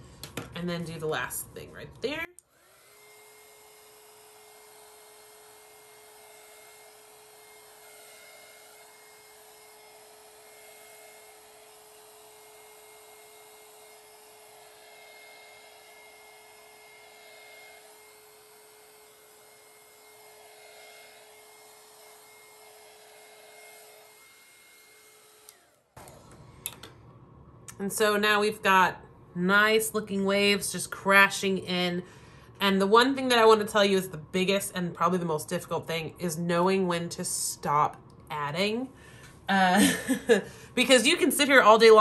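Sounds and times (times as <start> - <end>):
heat gun blowing hum and whine: 0.0 - 42.0.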